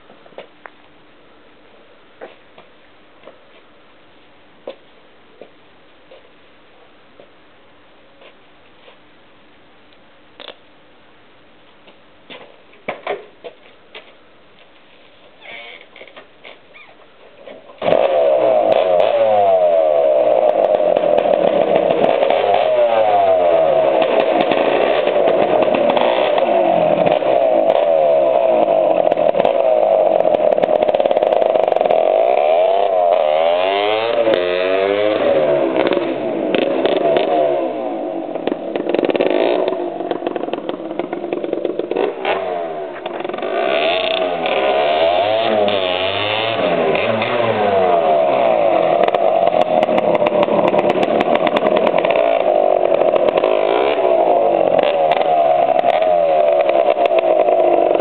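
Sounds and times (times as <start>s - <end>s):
motorcycle engine revving: 17.8s - 58.0s.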